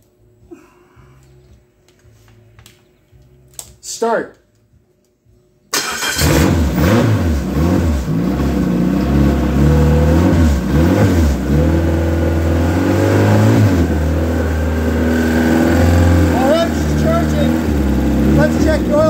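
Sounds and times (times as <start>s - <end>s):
car engine revving and idling: 5.8s - 19.0s.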